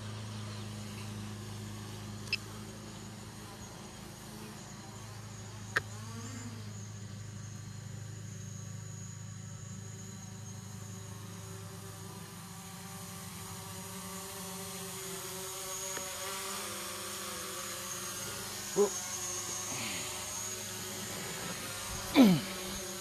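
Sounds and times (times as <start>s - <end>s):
drone propellers buzzing: 11.2s - 23.0s.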